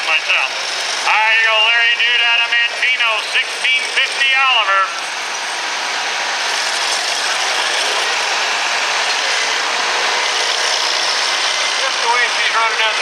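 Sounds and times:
tractor engine under load: 0.0s - 13.0s.

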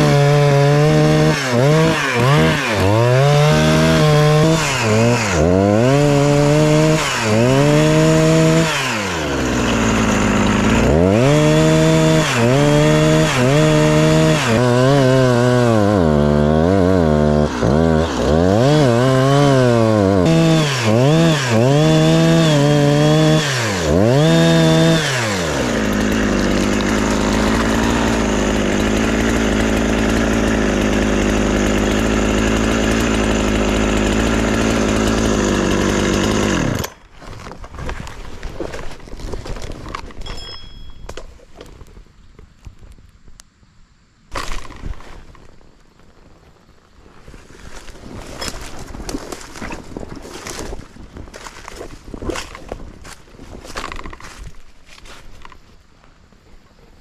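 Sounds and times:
chainsaw engine revving: 0.0s - 37.1s.

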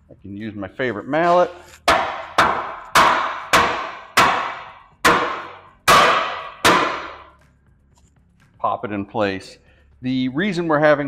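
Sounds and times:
mallet striking metal bracket: 1.8s - 7.3s.

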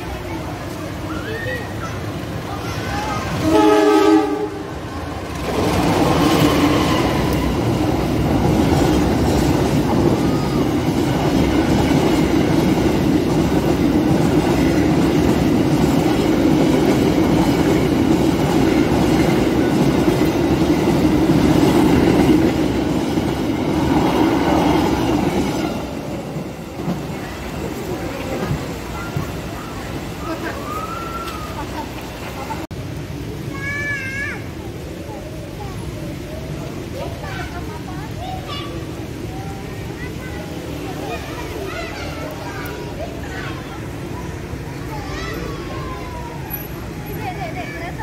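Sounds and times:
train wheels on rails: 0.0s - 48.0s
locomotive horn: 3.4s - 4.7s.

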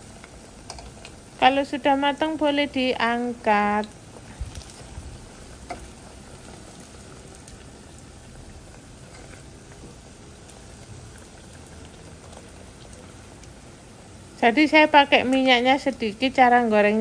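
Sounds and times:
oil sizzling and bubbling: 0.0s - 17.0s.

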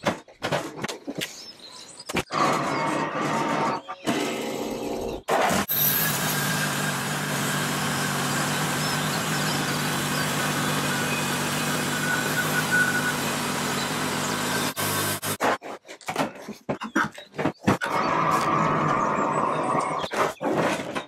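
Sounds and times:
band sawmill cutting wood: 2.3s - 15.7s.

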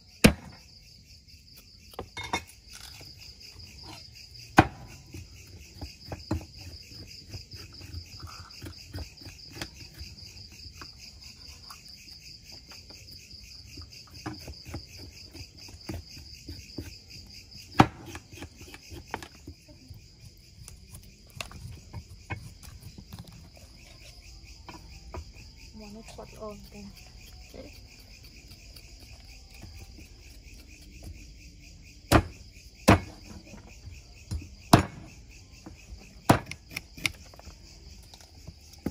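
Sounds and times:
night insects trilling: 0.0s - 38.9s
knives chopping on wooden boards: 0.2s - 0.6s, 3.8s - 10.9s, 13.6s - 20.0s, 32.0s - 38.9s.

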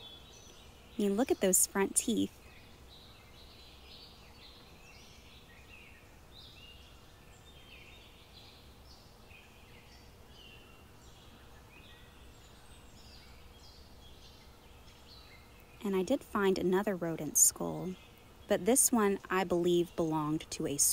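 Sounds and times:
birds chirping: 0.0s - 20.9s
low steady hum: 0.0s - 20.9s.

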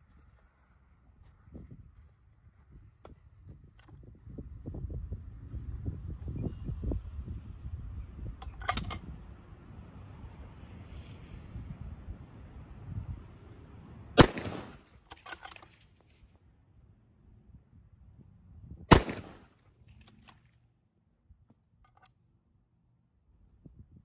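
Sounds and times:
short clicks: 8.4s - 9.1s
rifle shots: 14.2s - 15.8s, 18.9s - 20.1s.

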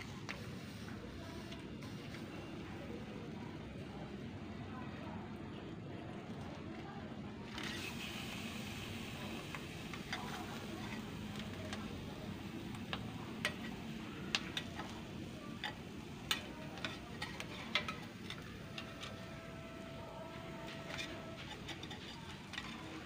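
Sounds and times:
fish sizzling on charcoal grill: 7.6s - 19.9s, 20.6s - 23.0s.

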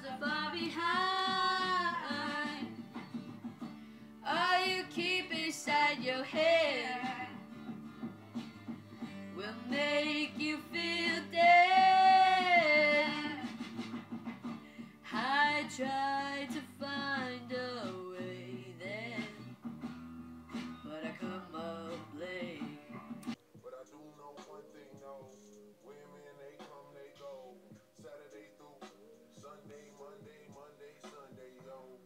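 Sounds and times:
woman singing: 0.0s - 2.7s, 4.2s - 7.4s, 9.3s - 13.6s, 15.0s - 19.4s, 20.8s - 22.8s
guitar accompaniment: 0.0s - 23.4s.

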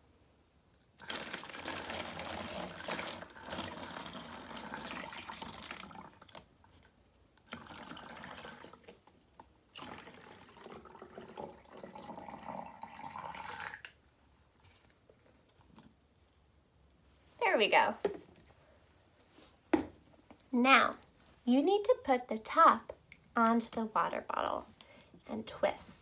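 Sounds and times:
water pouring into plastic bottle: 1.0s - 6.5s, 7.4s - 9.1s, 9.7s - 14.0s.

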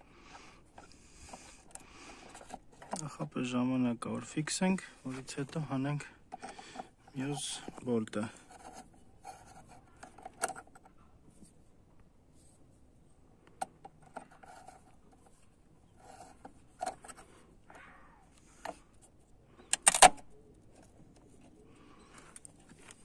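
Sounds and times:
small metal clicks and scrapes: 0.3s - 3.2s, 6.3s - 11.0s, 13.4s - 17.4s, 18.4s - 23.0s.

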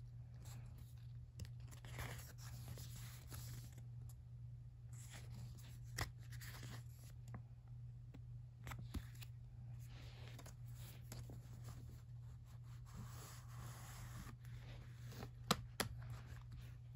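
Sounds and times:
steady low hum: 0.0s - 16.9s
paper pages rustling: 0.4s - 3.8s, 4.9s - 7.2s, 8.6s - 12.0s.

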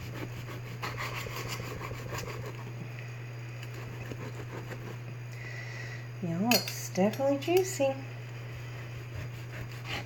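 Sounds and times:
knife scraping on wooden board: 0.0s - 2.7s, 3.6s - 5.0s, 8.5s - 10.0s
steady low hum: 0.0s - 10.0s.

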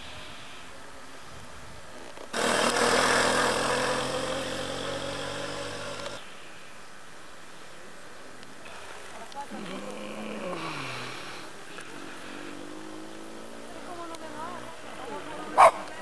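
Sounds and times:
faint background hiss: 0.0s - 16.0s
vehicle engine running loud: 2.4s - 6.2s.

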